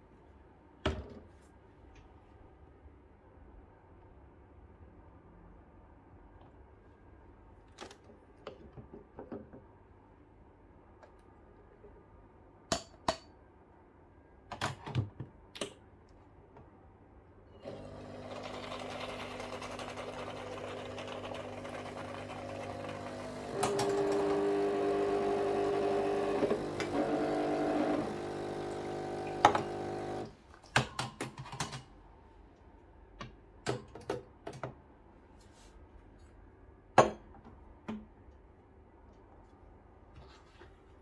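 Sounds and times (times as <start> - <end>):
espresso machine pump buzzing: 17.6 - 30.3.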